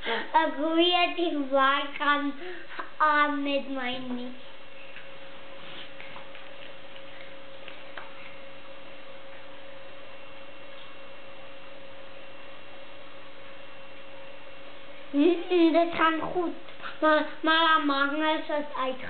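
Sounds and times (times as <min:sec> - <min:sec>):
two-tone electrical hum: 0:00.0 - 0:19.0.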